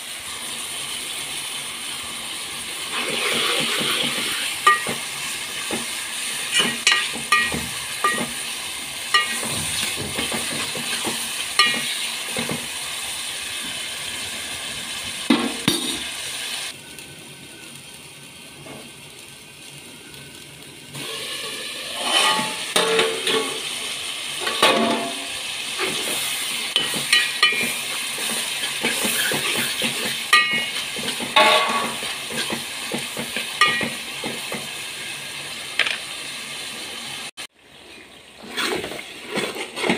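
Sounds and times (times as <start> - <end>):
vegetables sizzling in oil: 0.0 - 39.9
spoon clinking and scraping pot: 3.2 - 5.0, 6.5 - 8.4, 9.1 - 12.6, 21.4 - 23.7, 26.8 - 32.6, 33.6 - 34.0.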